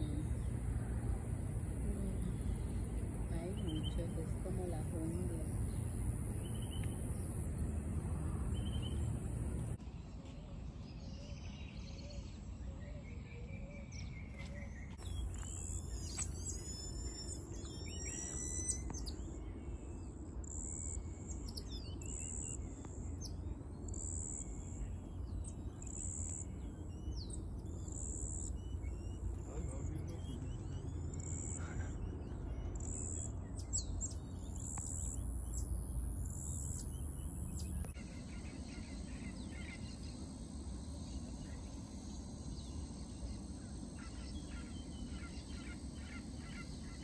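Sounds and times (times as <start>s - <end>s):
low background rumble: 0.0s - 10.1s
birds chirping: 0.0s - 47.0s.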